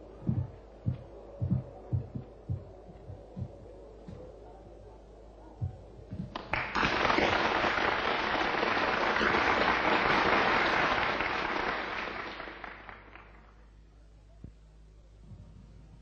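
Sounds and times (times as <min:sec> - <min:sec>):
audience applauding: 0:06.3 - 0:13.6.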